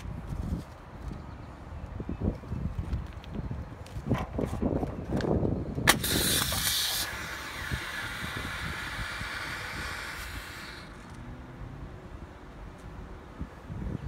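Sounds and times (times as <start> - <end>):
firestarter hissing: 5.9 - 11.2
igniter sharp snap: 5.9 - 11.2.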